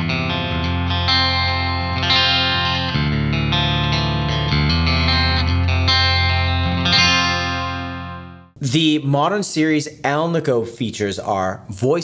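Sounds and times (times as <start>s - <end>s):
electric guitar chords: 0.0s - 8.7s.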